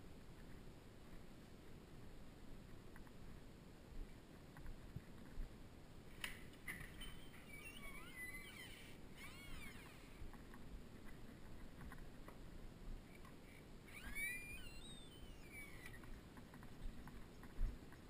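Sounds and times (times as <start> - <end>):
high chirping calls: 7.0 - 10.2, 13.9 - 16.2.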